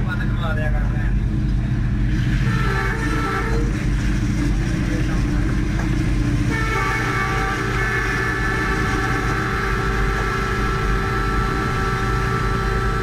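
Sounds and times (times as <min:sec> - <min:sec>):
diesel locomotive engine running: 0:00.0 - 0:13.0
locomotive horn blasts: 0:02.4 - 0:03.9, 0:06.4 - 0:13.0.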